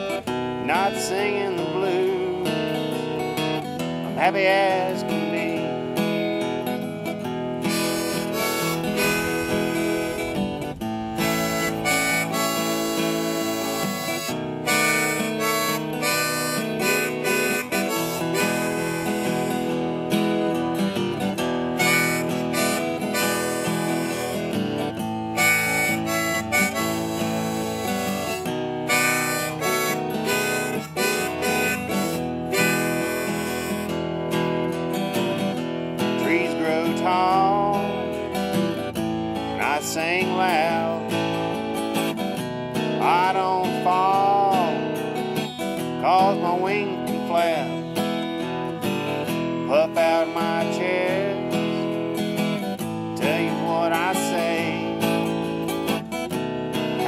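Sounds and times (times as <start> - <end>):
acoustic guitar fingerpicked: 0.0 - 57.0
harmonica: 4.2 - 37.8.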